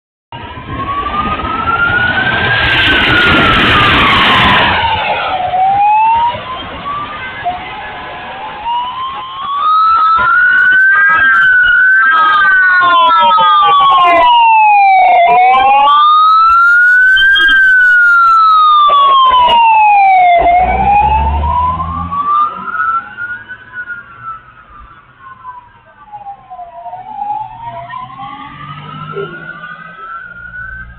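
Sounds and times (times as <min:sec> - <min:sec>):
police sirens wailing: 0:00.3 - 0:30.9
loud rush of noise: 0:00.4 - 0:09.0.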